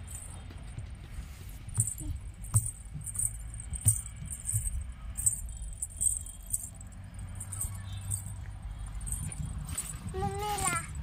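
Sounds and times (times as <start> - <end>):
small anklet bells jingling: 0.0 - 11.0
sharp knocks: 1.7 - 5.4.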